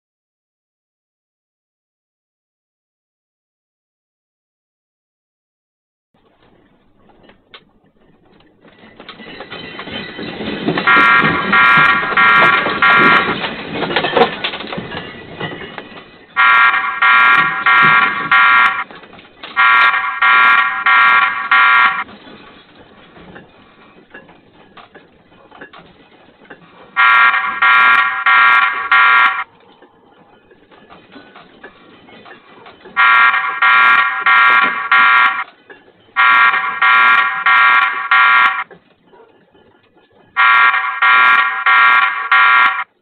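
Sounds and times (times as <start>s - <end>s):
shelving rumbling and rattling: 6.2s - 27.8s
electronic alarm beeps: 10.9s - 13.4s, 16.4s - 18.8s, 19.6s - 22.0s, 27.0s - 29.4s, 33.0s - 35.4s, 36.2s - 38.6s, 40.4s - 42.8s.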